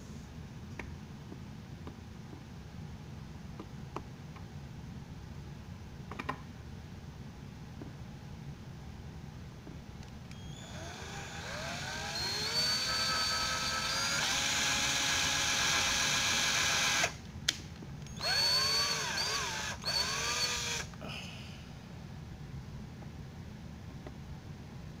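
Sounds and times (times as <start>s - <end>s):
power drill whining: 10.3s - 17.2s, 18.1s - 20.9s.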